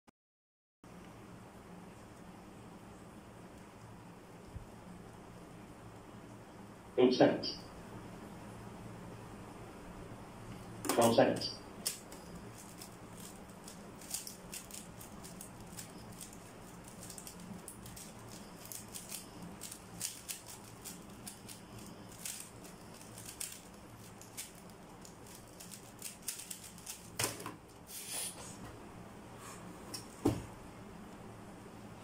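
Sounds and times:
puzzle cube clicking and rattling: 11.8 - 27.2.

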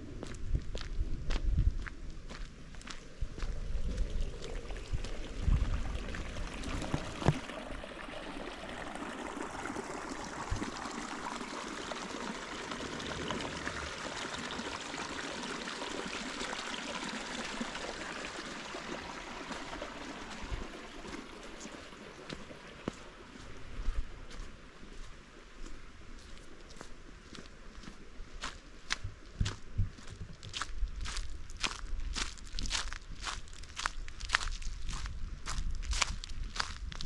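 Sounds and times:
running water rushing: 3.4 - 23.8.

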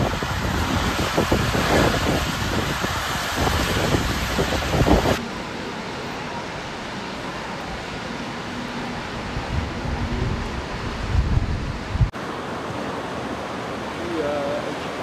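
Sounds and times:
wind buffeting microphone: 0.0 - 5.2, 8.8 - 12.2
steady outdoor hiss: 0.0 - 15.0
traffic on a wet road: 0.0 - 15.0.

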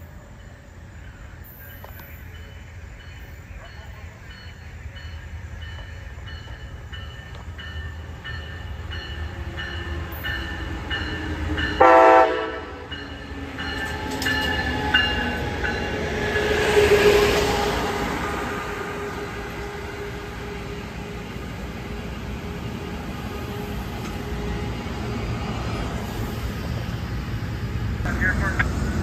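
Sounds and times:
locomotive bell ringing: 0.0 - 16.2
train running noise: 0.0 - 29.0
train horn blast: 11.8 - 12.9.

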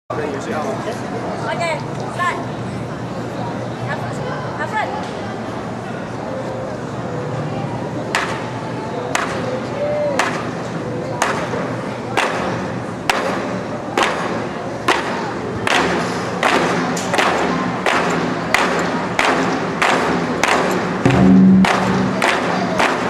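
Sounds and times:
sharp unison drum accents: 20.2 - 23.0
large drums rolling rumble: 21.0 - 23.0
loud held low tone: 21.0 - 23.0.

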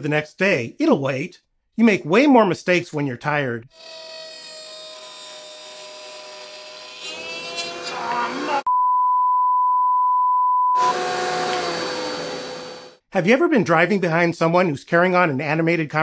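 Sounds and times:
router whining: 3.7 - 8.7, 10.8 - 13.0
steady single-pitch bleep: 8.7 - 10.8.

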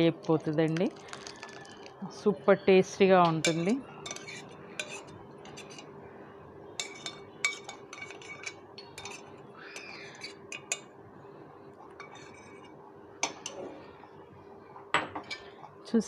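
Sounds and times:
metal spoon scraping steel pan: 3.4 - 5.9, 6.8 - 10.8.

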